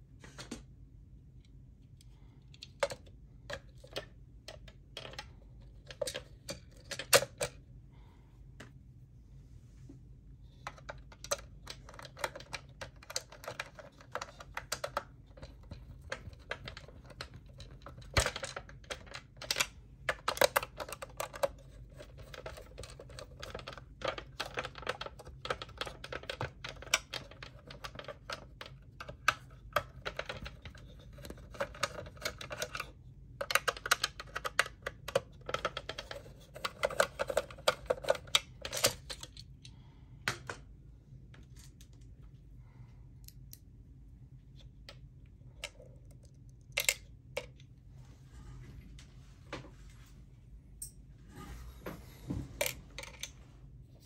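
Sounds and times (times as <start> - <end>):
faint low hum: 0.0 - 54.0
clicking of screws and tools: 43.2 - 43.7.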